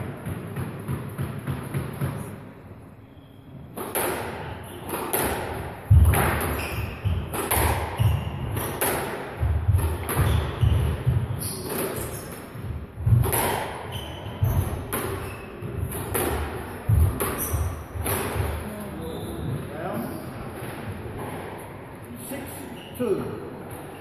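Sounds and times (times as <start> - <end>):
squash ball striking rackets and walls: 0.0 - 2.7, 3.6 - 18.8, 20.5 - 21.8
shoes squeaking on wooden floor: 6.4 - 8.4, 13.8 - 15.9, 16.9 - 18.0.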